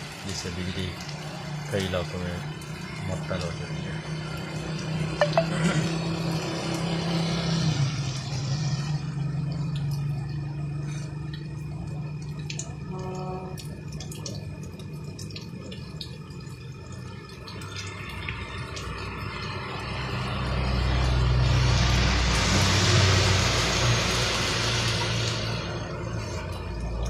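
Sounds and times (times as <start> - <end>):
drops dripping from roof edge: 0.0 - 27.0
heavy rain on pavement: 0.0 - 27.0.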